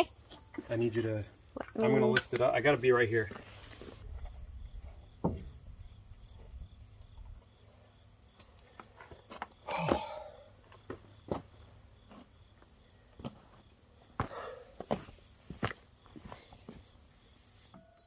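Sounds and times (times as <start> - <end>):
insects chirping: 0.0 - 18.0
boots crunching on stony dirt: 13.2 - 16.8.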